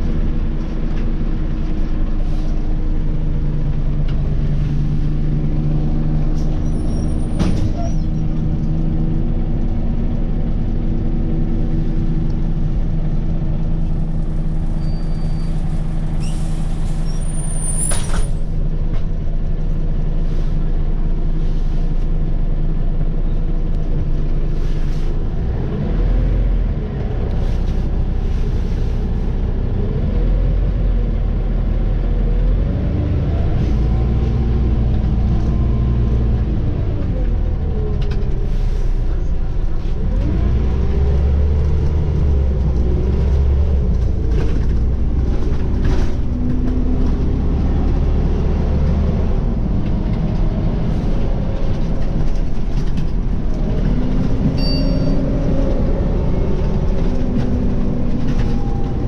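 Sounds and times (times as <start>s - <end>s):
bus diesel engine: 0.0s - 59.0s
short high squeal with click: 6.6s - 8.2s, 14.7s - 18.4s.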